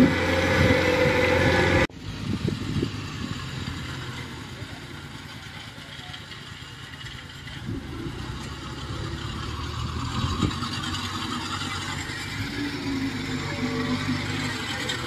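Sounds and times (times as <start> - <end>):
small vehicle engine running: 0.0 - 15.0.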